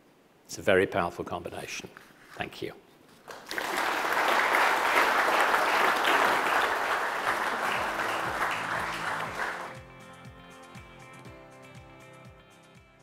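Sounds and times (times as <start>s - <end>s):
audience applauding: 3.3s - 9.9s.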